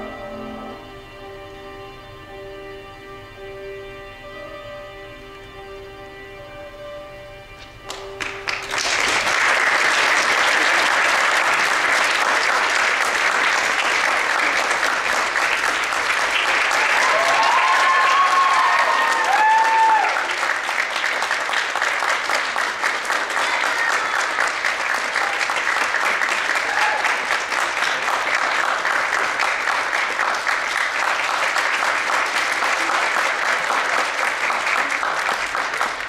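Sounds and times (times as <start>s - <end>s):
music: 0.0s - 36.0s
audience applauding: 7.9s - 36.0s
people cheering: 8.7s - 36.0s.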